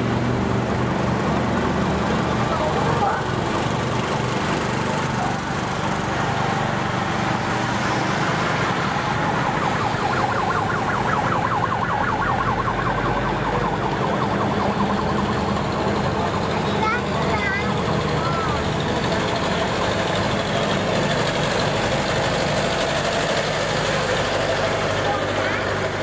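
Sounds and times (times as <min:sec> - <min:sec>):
passing vehicle engines: 0:00.0 - 0:26.0
siren warbling: 0:08.2 - 0:16.9.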